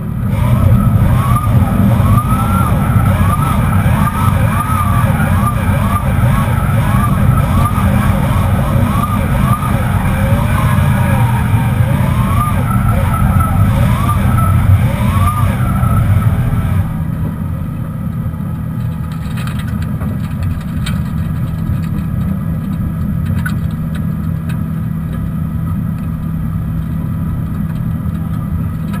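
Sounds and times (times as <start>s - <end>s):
electric motor hum: 0.0s - 17.3s
car driving noise: 0.0s - 29.0s
tyres squealing: 0.3s - 17.0s.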